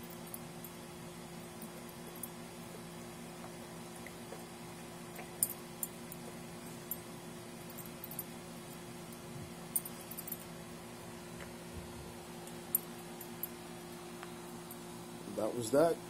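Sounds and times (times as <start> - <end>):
steady low hum: 0.0 - 16.0
dog tags clinking: 9.1 - 10.5.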